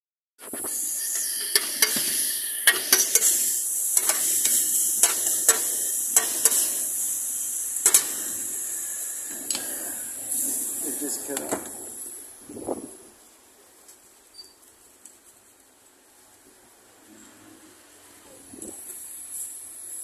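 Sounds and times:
food sizzling in a metal pan: 0:00.4 - 0:12.4.

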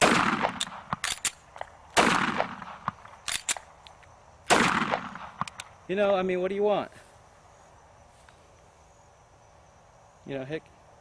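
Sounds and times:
pistol shots with echo: 0:00.0 - 0:01.4, 0:02.0 - 0:03.6, 0:04.5 - 0:05.6
metallic pistol handling clicks: 0:00.6 - 0:01.8, 0:03.0 - 0:04.1, 0:05.4 - 0:05.7.

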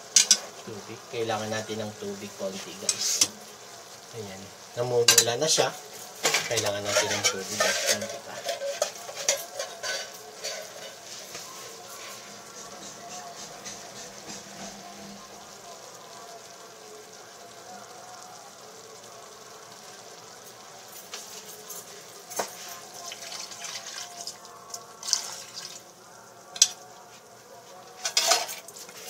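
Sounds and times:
chicken sizzling in sauce: 0:00.0 - 0:29.0
water splashing into hot pot: 0:20.9 - 0:27.0.

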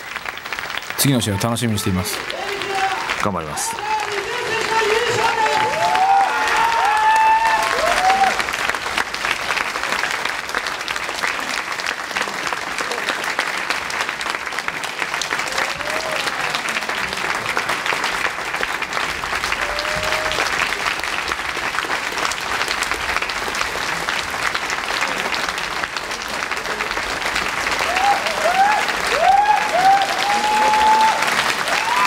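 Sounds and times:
crowd applauding: 0:00.0 - 0:32.0.

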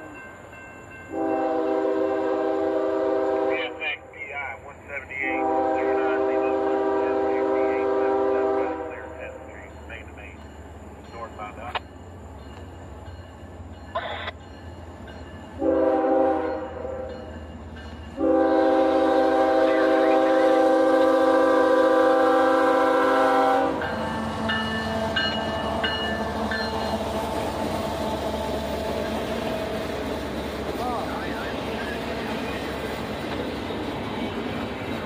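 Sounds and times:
locomotive rumbling past: 0:00.0 - 0:35.0
locomotive air horn: 0:01.1 - 0:04.0, 0:05.2 - 0:09.5, 0:15.6 - 0:17.1, 0:18.2 - 0:29.9.

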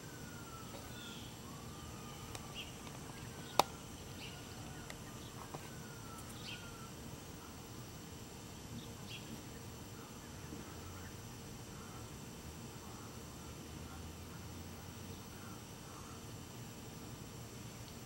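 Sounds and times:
insect buzz: 0:00.0 - 0:18.0
whistled bird calls: 0:05.7 - 0:06.9.

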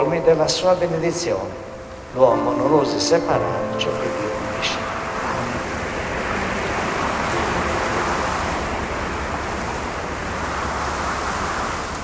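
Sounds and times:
sea waves washing: 0:00.0 - 0:12.0.

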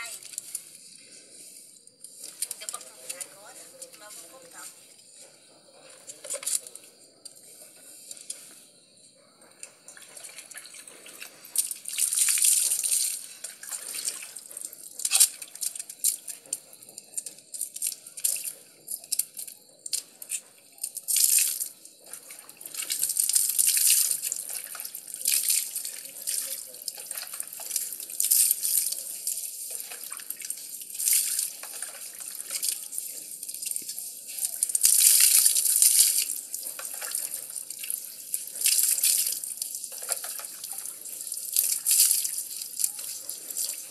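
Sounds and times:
water splashing: 0:21.2 - 0:43.9.

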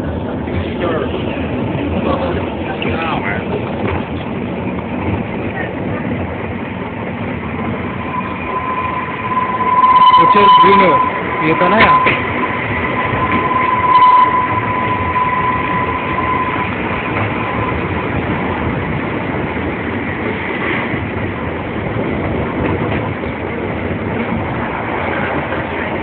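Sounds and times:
wheels clickety-clack: 0:00.0 - 0:08.0, 0:16.2 - 0:26.0
train rumbling on track: 0:00.0 - 0:26.0
high-pitched whine: 0:07.2 - 0:19.3.

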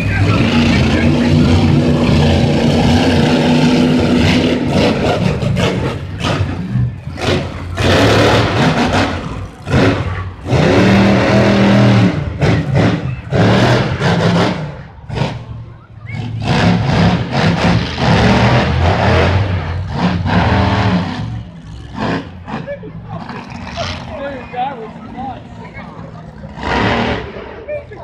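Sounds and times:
truck engine revving: 0:00.0 - 0:28.0.

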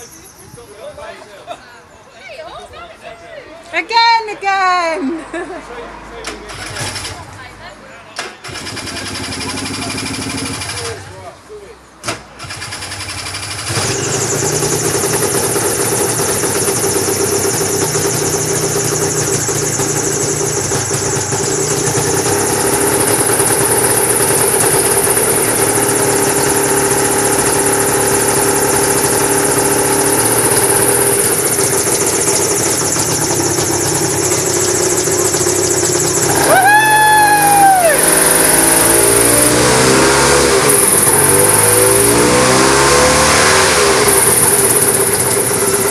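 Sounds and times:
gyrocopter engine running: 0:13.0 - 0:45.9.

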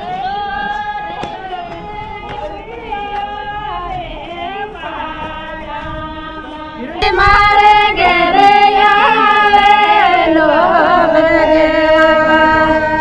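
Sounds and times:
woman singing: 0:00.0 - 0:13.0.

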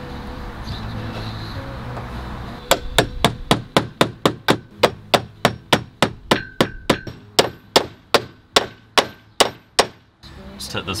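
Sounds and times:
hammer tapping metal pipe fitting: 0:04.3 - 0:07.9.

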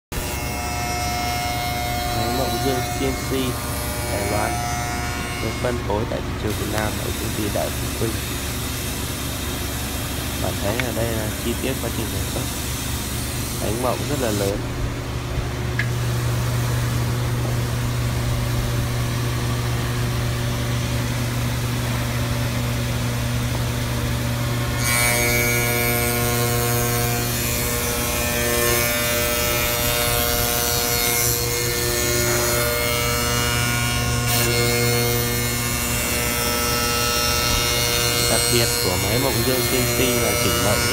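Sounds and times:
cutter milling wood: 0:00.2 - 0:14.6, 0:24.5 - 0:40.9
machine motor hum: 0:00.2 - 0:40.9.

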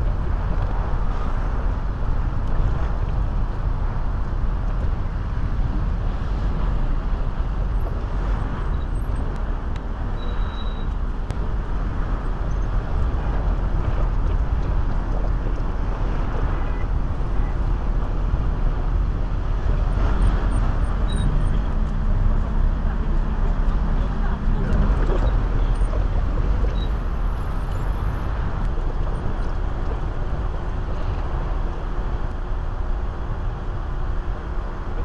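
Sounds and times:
city traffic rumble: 0:00.0 - 0:35.0.

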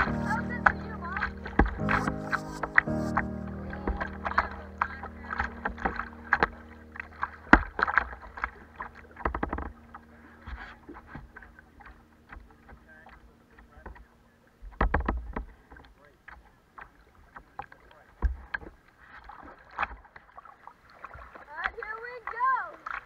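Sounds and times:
sharp splashes: 0:00.0 - 0:13.8
river water splashing and lapping: 0:00.0 - 0:23.0.

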